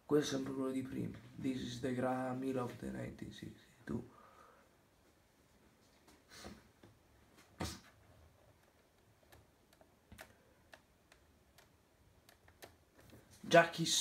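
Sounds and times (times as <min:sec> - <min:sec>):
faint clicks: 0:08.5 - 0:13.2.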